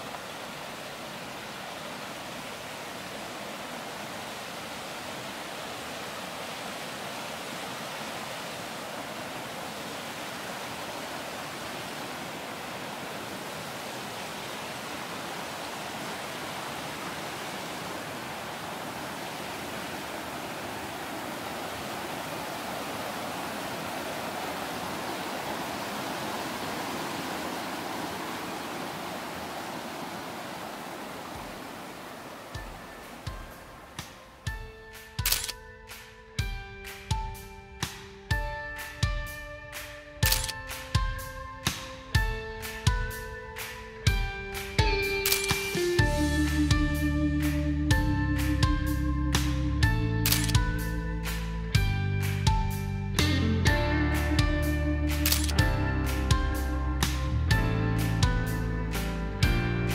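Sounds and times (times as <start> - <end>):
stream rushing over boulders: 0.0 - 35.5.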